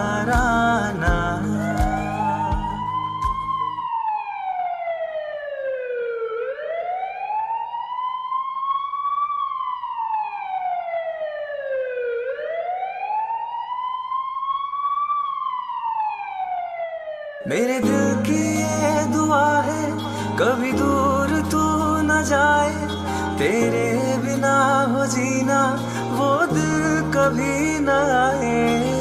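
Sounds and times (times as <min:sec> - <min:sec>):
music: 0:00.0 - 0:03.8, 0:17.8 - 0:29.0
siren wailing: 0:00.0 - 0:29.0.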